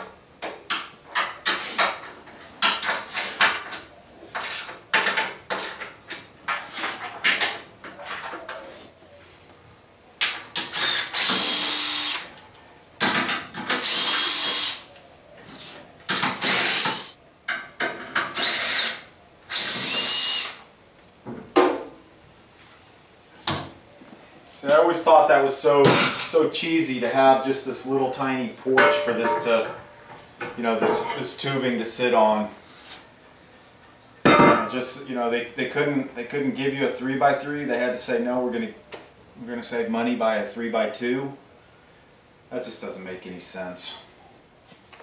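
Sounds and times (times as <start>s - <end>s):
cordless drill whining: 10.7s - 12.3s, 13.7s - 14.8s, 16.4s - 17.2s, 18.3s - 20.6s.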